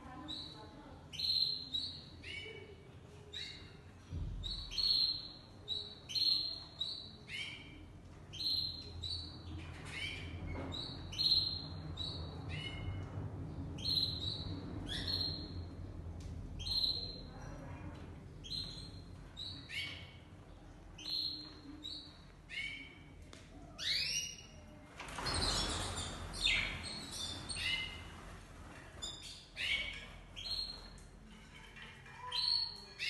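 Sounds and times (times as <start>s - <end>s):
canaries chirping: 0.1s - 3.8s, 4.4s - 13.1s, 13.8s - 15.8s, 16.6s - 17.4s, 18.4s - 20.3s, 21.0s - 23.1s, 23.8s - 24.6s, 25.2s - 28.3s, 29.0s - 33.0s.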